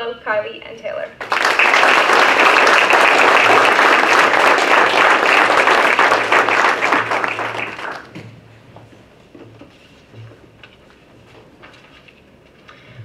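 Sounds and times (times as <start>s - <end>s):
audience applauding: 1.2s - 8.2s.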